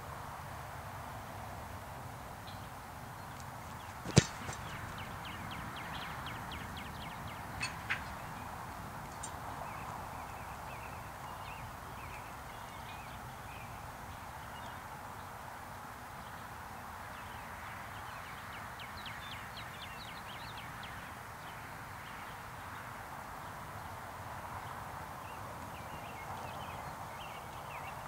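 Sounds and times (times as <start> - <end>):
background noise: 0.0 - 28.0
foot kicking football thud: 3.7 - 6.7.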